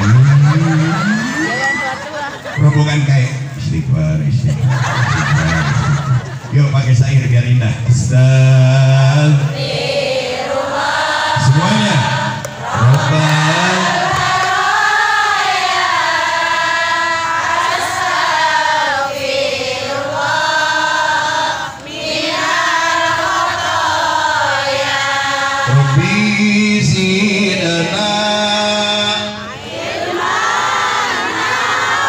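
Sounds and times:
lower voice chanting: 7.9s - 10.6s, 11.2s - 14.6s
congregation chanting in unison: 7.9s - 32.0s.

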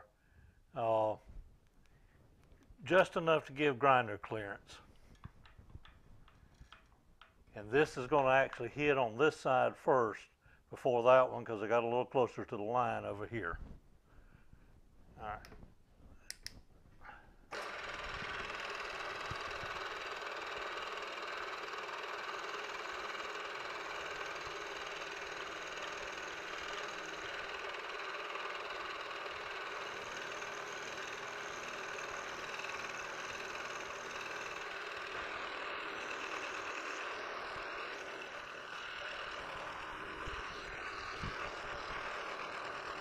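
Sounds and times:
milling machine cutting: 17.5s - 43.0s.

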